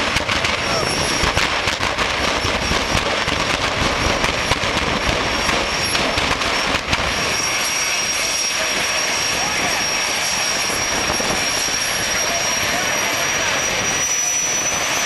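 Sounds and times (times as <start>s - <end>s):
crackling racing engine: 0.0s - 15.0s.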